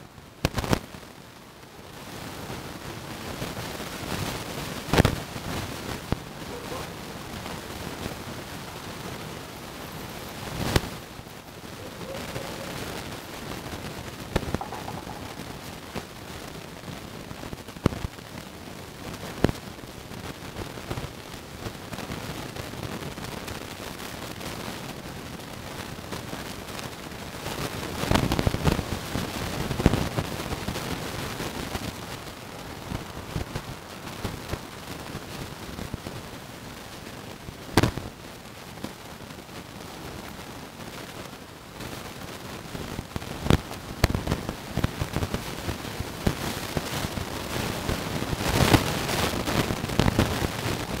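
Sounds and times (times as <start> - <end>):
plants rustling and crackling: 3.4 - 17.9.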